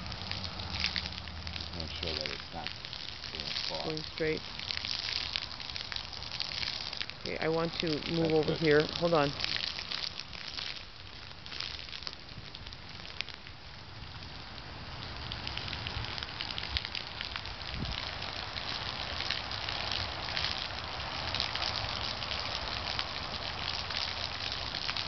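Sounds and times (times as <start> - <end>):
water splashing: 0.0 - 13.5, 14.3 - 25.0
rain pattering on water: 0.0 - 25.0.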